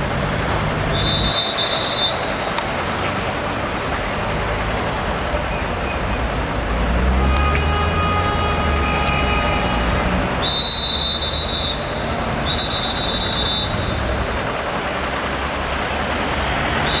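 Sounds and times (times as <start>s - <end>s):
car engines and tyre noise: 0.0s - 17.0s
high-pitched whistling squeal: 0.9s - 2.6s, 10.4s - 14.2s.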